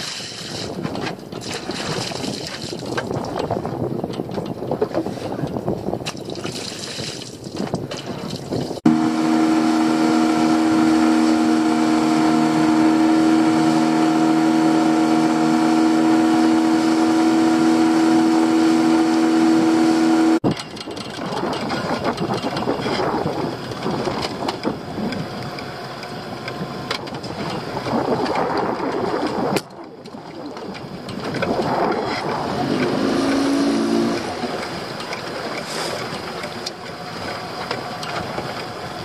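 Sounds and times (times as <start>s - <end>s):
water splashing at boat side: 0.0s - 20.4s
boat engine humming: 8.7s - 39.0s.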